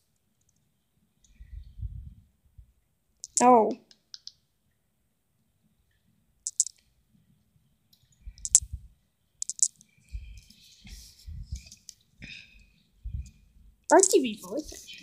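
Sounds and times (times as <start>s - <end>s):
short sharp clicks: 9.4s - 9.8s.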